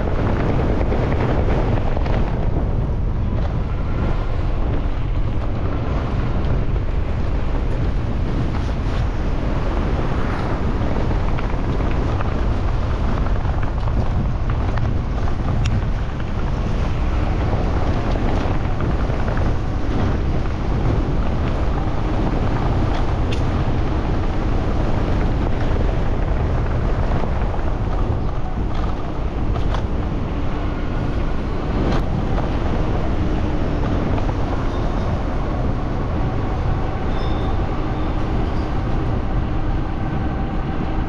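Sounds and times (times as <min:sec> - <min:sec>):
road and traffic noise: 0:00.0 - 0:41.0
wind buffeting microphone: 0:00.0 - 0:41.0.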